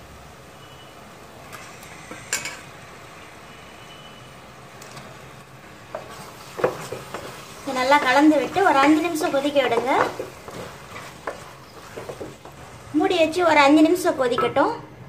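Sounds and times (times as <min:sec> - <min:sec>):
spices sizzling in a pot: 0:00.0 - 0:14.3
wooden spatula scraping pot: 0:05.7 - 0:12.9.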